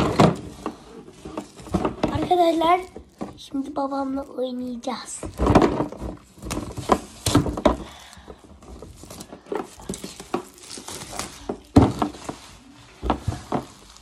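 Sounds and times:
knocks and clatters: 0.0s - 3.7s, 5.0s - 7.9s
plastic wrap crinkling: 0.0s - 14.0s.

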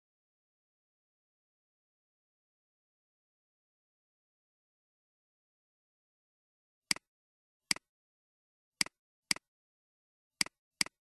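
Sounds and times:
computer mouse clicking: 10.4s - 11.0s.

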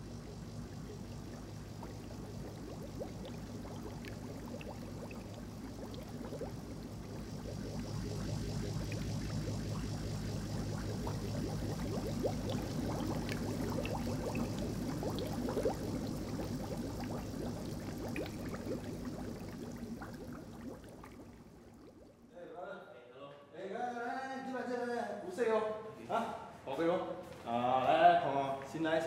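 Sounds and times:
aquarium water bubbling: 0.0s - 22.3s
fish tank filter hum: 0.0s - 22.3s.

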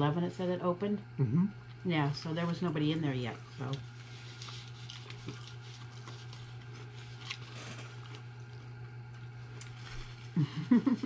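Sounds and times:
steady low hum: 0.0s - 11.0s
paper rustling: 4.0s - 8.3s.

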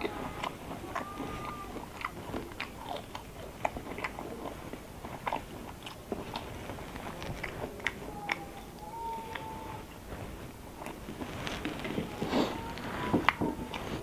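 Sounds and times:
person chewing: 0.0s - 9.5s.

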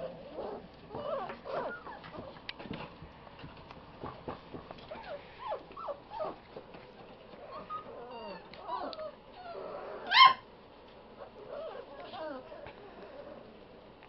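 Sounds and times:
puppies whimpering and yipping: 0.0s - 2.4s, 4.8s - 10.5s, 11.2s - 13.5s
puppy yelp: 0.4s - 2.3s, 4.9s - 6.4s, 7.4s - 10.5s, 11.3s - 12.6s.

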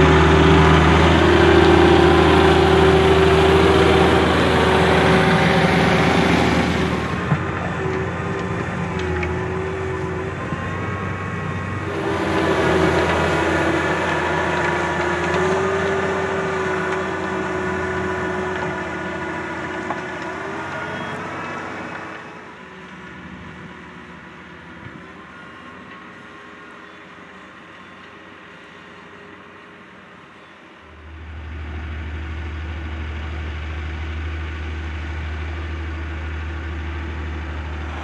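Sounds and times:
engine whine: 0.0s - 38.0s
tractor diesel engine under load: 0.0s - 38.0s.

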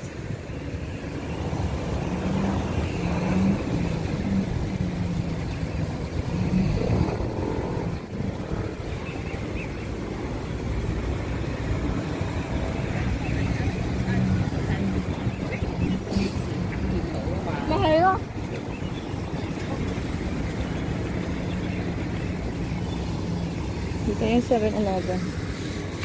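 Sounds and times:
low engine hum: 0.0s - 26.0s
low rumble of road traffic: 0.0s - 26.0s.

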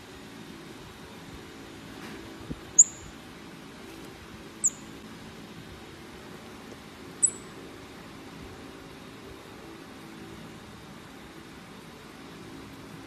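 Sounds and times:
monkey high-pitched chirps: 2.8s - 3.2s, 4.6s - 4.9s, 7.2s - 7.5s.

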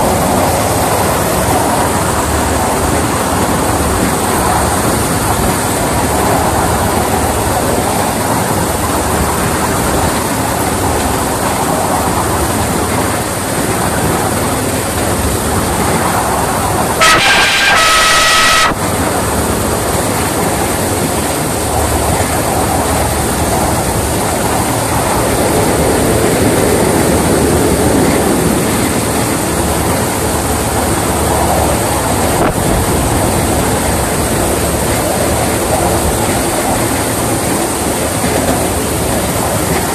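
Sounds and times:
locomotive rumble: 0.0s - 39.9s
locomotive horn blast: 16.7s - 20.3s.

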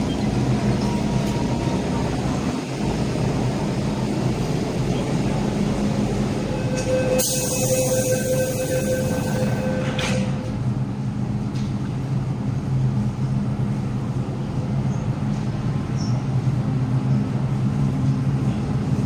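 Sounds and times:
train rumble and hum: 0.0s - 19.0s
steady mid-pitched tone: 5.3s - 10.5s.

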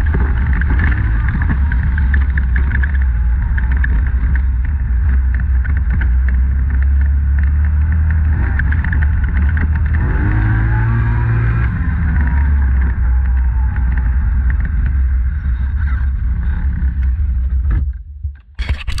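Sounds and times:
atv engine running: 0.0s - 17.8s.

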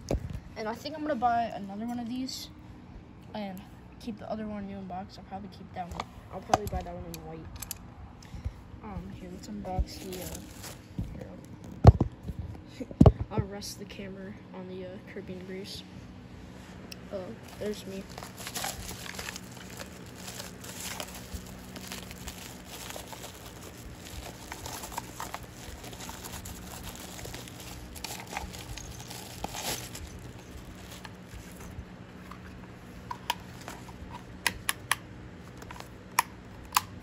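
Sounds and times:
packing material crumpling: 9.9s - 11.8s, 17.4s - 34.4s.

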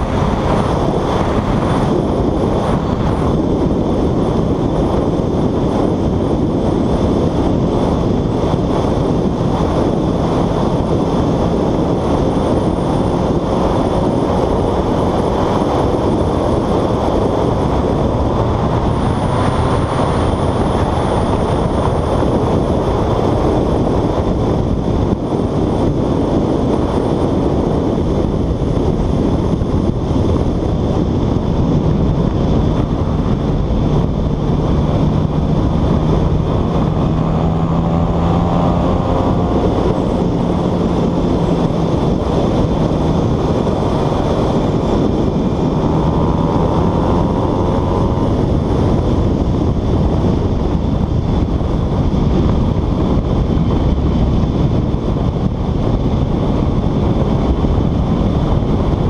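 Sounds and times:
motorcycle road noise: 0.0s - 59.0s
wind rush: 0.0s - 59.0s.

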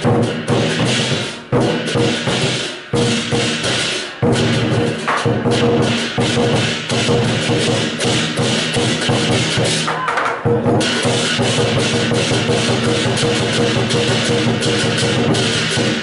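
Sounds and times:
hand cymbals crashing: 0.0s - 16.0s
large drum beaten fast: 0.0s - 16.0s.

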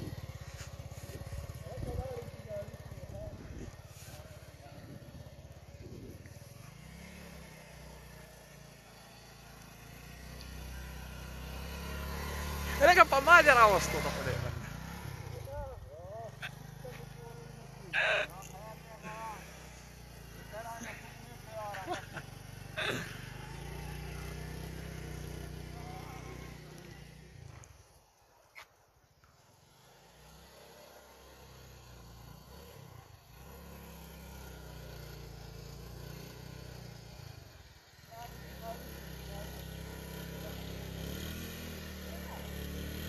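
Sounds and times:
small motorcycle engine running: 0.0s - 43.0s.

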